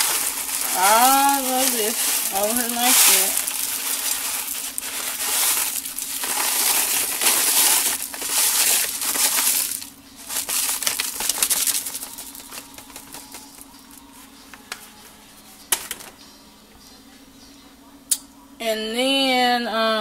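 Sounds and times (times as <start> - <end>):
dry crumbs pouring and rattling: 0.0 - 13.6.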